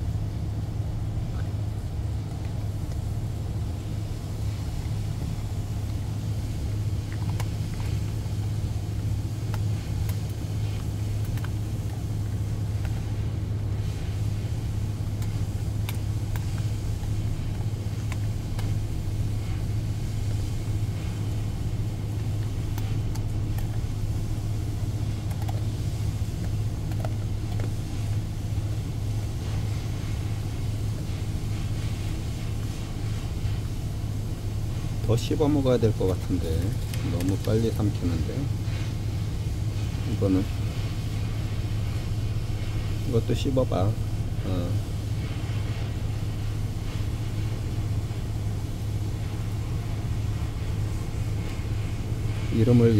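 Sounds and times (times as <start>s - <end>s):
ship engine drone: 0.0s - 52.9s
dog chewing meat: 1.2s - 38.0s.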